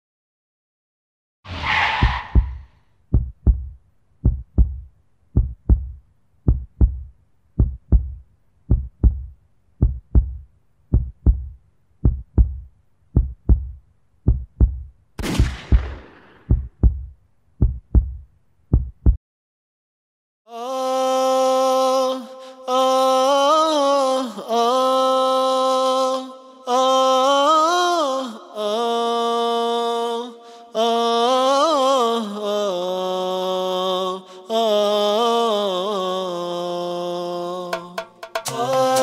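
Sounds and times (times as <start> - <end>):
heartbeat thumping: 2.0 - 19.2.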